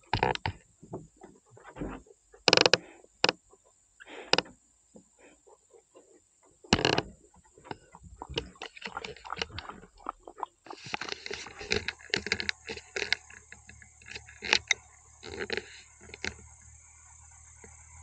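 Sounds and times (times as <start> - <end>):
leopard lapping water: 5.2 - 16.6.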